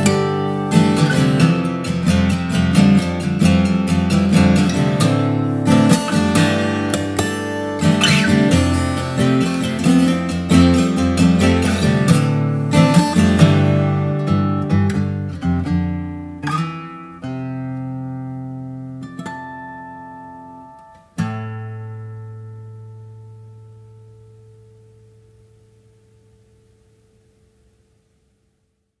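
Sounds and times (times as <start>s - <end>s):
fingerstyle acoustic guitar: 0.0s - 27.2s.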